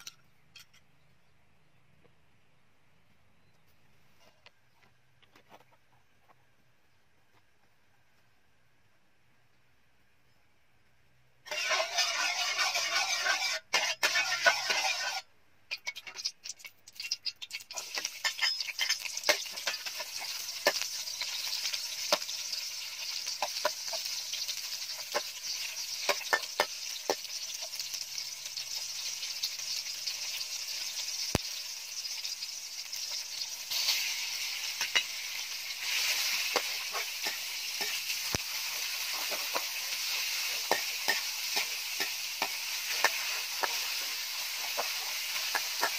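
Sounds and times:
metal spatula scraping wok: 0:11.4 - 0:31.4, 0:32.0 - 0:45.9
garlic sizzling in hot oil: 0:11.4 - 0:45.9.

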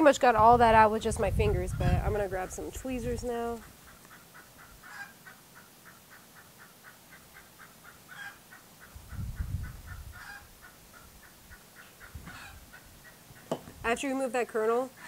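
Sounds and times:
wind rumble on microphone: 0:00.0 - 0:03.7, 0:08.9 - 0:11.2, 0:12.0 - 0:13.0
chicken calling: 0:03.6 - 0:13.5.

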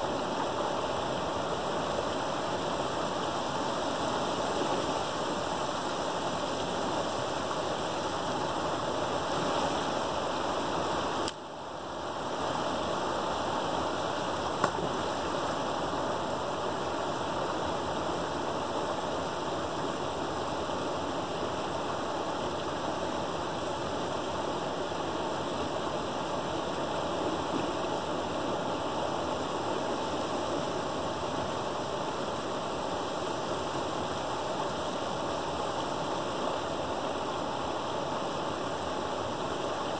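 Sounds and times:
water rushing through a dam: 0:00.0 - 0:39.9
sharp click: 0:14.6 - 0:14.8.

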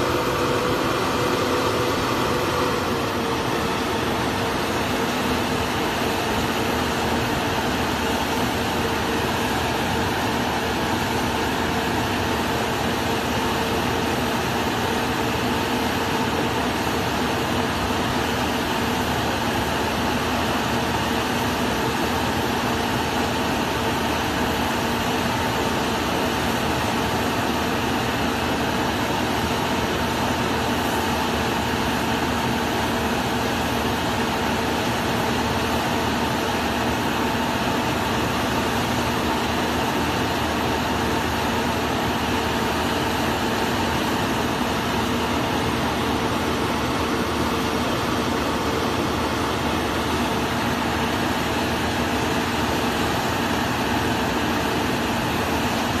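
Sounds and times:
diesel engine humming: 0:00.0 - 0:15.0.

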